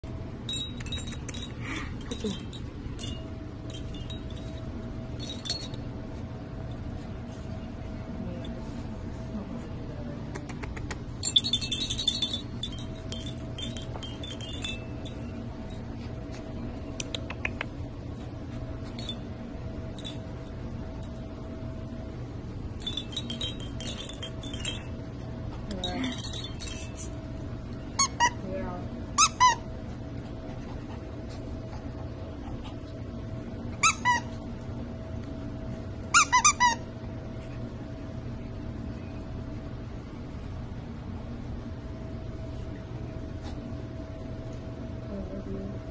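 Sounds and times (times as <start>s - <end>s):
steady low hum: 0.0s - 45.9s
tinkling chime-like notes: 0.4s - 6.0s, 11.2s - 16.0s, 22.8s - 25.1s, 25.7s - 27.1s
light clinks: 0.4s - 6.9s, 11.1s - 17.6s, 18.7s - 21.4s, 22.7s - 27.9s
dog toy squeaking: 28.0s - 28.4s, 29.2s - 29.7s, 33.8s - 34.4s, 36.1s - 36.9s.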